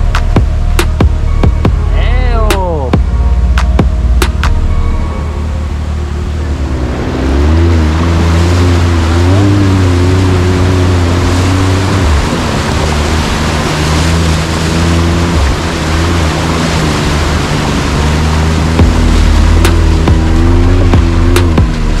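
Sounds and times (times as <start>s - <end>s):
rushing and splashing water: 0.0s - 22.0s
quad bike engine running: 5.8s - 22.0s.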